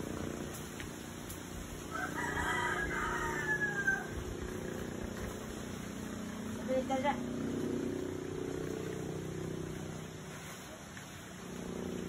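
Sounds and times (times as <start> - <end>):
rooster crowing: 1.8 - 4.7.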